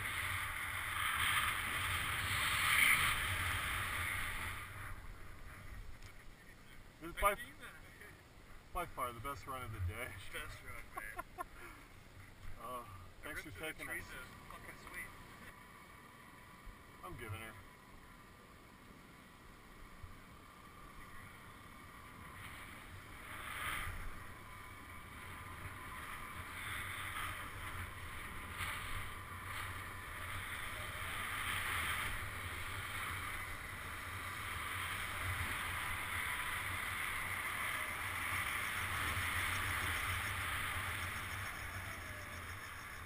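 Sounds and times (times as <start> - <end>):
snowboard hissing over snow: 0.0 - 5.2, 22.3 - 42.3
wind rushing over camera: 0.0 - 6.4, 18.8 - 43.0.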